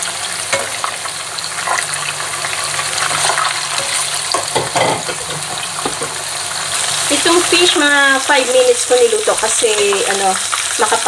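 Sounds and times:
hot oil sizzling and crackling: 0.0 - 11.0.

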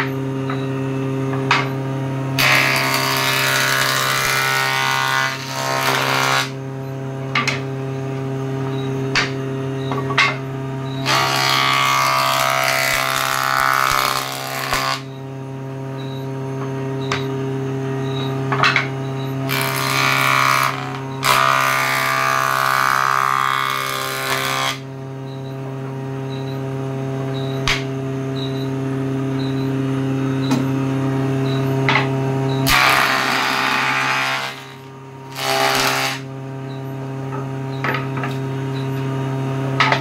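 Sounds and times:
wood block cutting noise: 2.4 - 6.6, 11.0 - 15.2, 18.6 - 24.9, 31.9 - 36.3.

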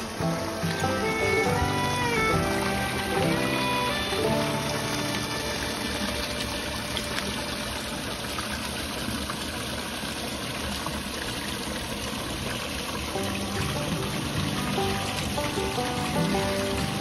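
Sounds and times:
water splashing on rocks: 0.0 - 9.3
water pouring from a pipe: 0.0 - 17.0.

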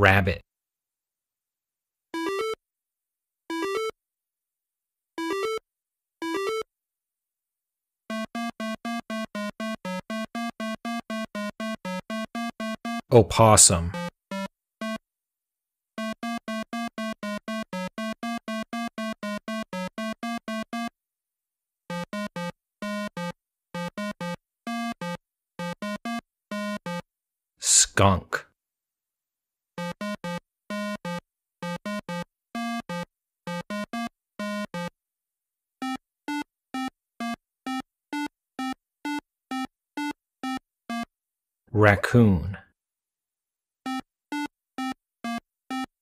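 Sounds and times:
chiptune beeps: 2.2 - 2.6, 3.5 - 3.9, 5.2 - 5.6, 6.2 - 6.6, 8.1 - 15.0, 16.0 - 20.9, 21.9 - 27.0, 29.8 - 34.9, 35.8 - 41.1, 43.9 - 45.9.

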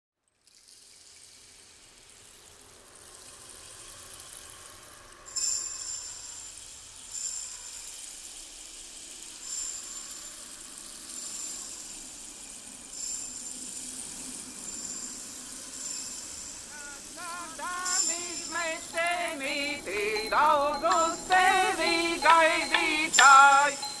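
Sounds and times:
soft hiss: 0.6 - 24.0
high jingling strikes: 12.6 - 24.0.

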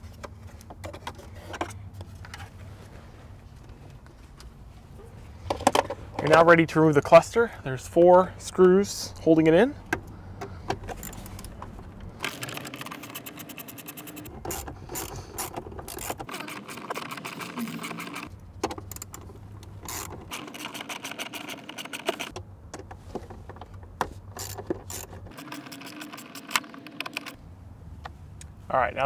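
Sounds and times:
electric screwdriver humming: 12.3 - 18.3.

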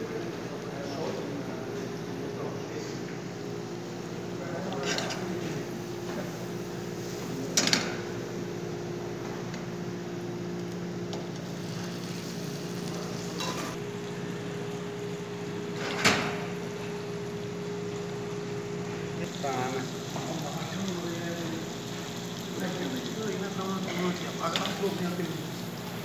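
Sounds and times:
steady hum: 0.0 - 26.0
metal cookware clanking: 4.7 - 5.3, 13.4 - 13.8
sauce sizzling in a frying pan: 11.4 - 13.9, 19.3 - 26.0.

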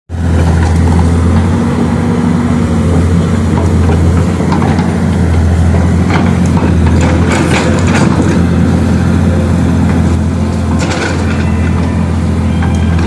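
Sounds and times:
excavator diesel engine running: 0.1 - 13.0.

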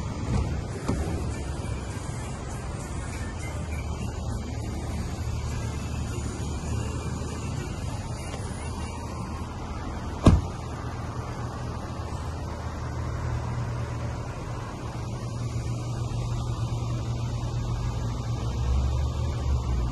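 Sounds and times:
car engine idling: 0.0 - 19.9
car door slamming: 0.2 - 1.3, 10.2 - 10.7.

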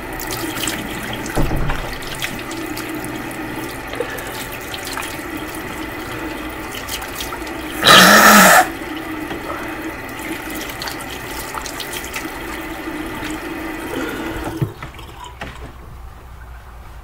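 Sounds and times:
tap running into basin: 0.0 - 15.9
hands splashing water: 0.2 - 7.7.

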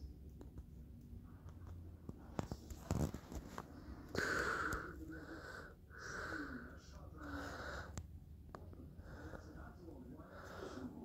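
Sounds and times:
person breathing: 3.6 - 8.1, 8.9 - 11.0.

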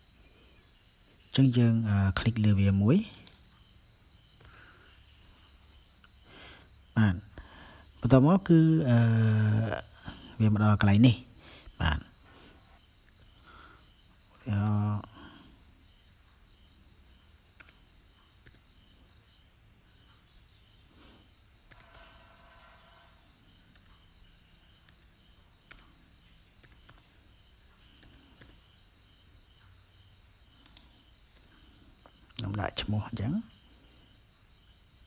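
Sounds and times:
computer keys typing: 3.0 - 3.6, 17.5 - 18.8, 21.6 - 22.2, 23.6 - 24.2, 24.8 - 28.8, 30.6 - 31.6.

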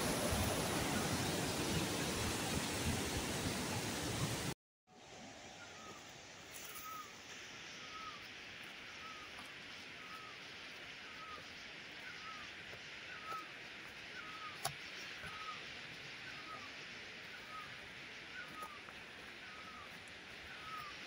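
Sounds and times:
steady high hiss: 5.0 - 21.0.

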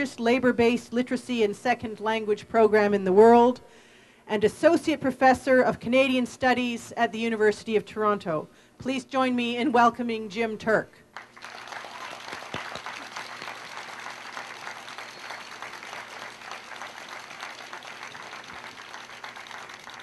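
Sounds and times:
crowd applauding: 11.2 - 20.0.

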